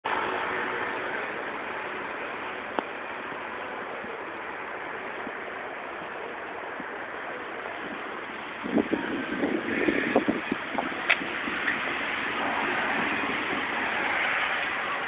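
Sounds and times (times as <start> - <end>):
bus approaching: 0.0 - 15.0
road traffic hiss: 0.0 - 15.0
wind: 0.0 - 15.0.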